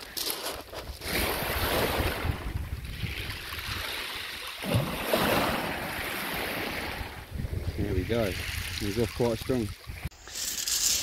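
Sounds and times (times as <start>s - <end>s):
waves washing over shingle: 0.2s - 7.2s.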